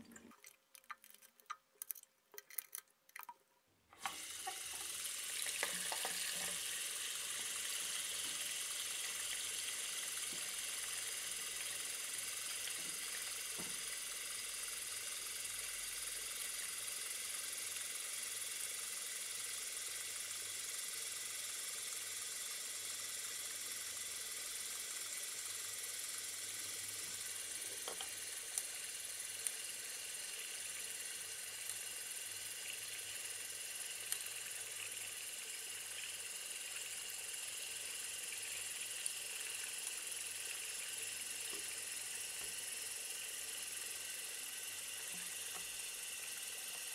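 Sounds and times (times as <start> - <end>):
tap running into sink: 4.0 - 6.8, 12.7 - 13.9.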